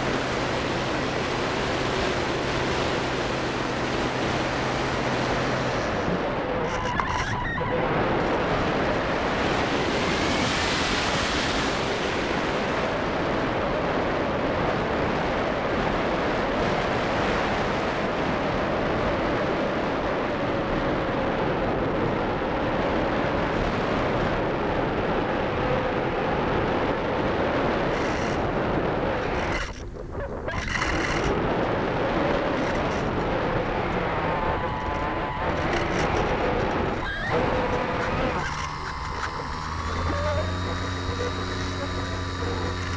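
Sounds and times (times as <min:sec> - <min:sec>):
airflow rushing over microphone: 0:00.0 - 0:06.9, 0:27.8 - 0:42.9
faint wavering hum: 0:32.6 - 0:42.9.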